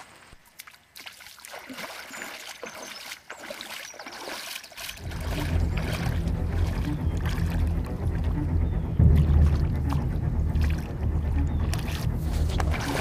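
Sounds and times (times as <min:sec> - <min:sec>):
water splashing and sloshing: 0:00.0 - 0:13.0
loud steady low rumble: 0:05.0 - 0:13.0.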